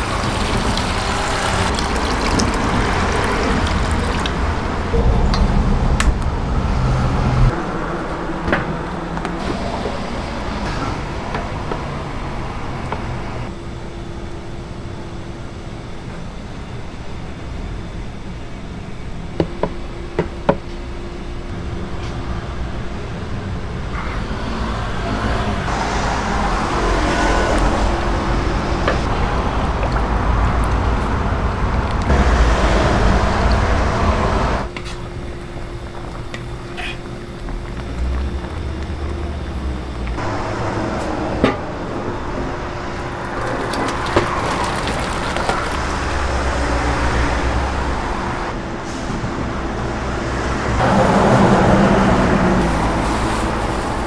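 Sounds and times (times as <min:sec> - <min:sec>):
gas burner roaring: 0:21.5 - 0:54.0.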